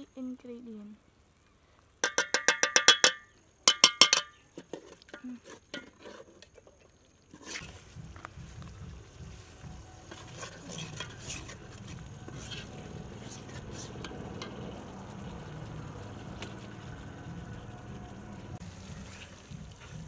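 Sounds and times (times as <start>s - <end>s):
ladle scraping metal pot: 4.1s - 8.3s, 9.2s - 15.4s
metal utensil clinking on metal: 10.1s - 13.6s.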